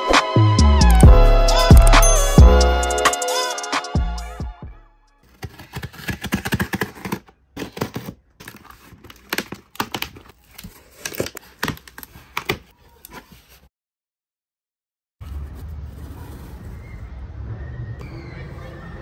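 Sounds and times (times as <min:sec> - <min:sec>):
packing tape ripping off cardboard: 0:05.3 - 0:13.2.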